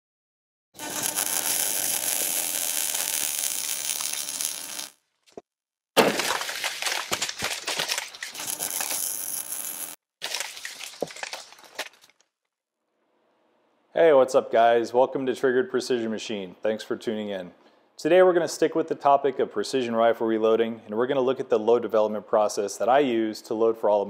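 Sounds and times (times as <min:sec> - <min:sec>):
crackling clicks: 0:00.8 - 0:05.0, 0:08.3 - 0:10.0.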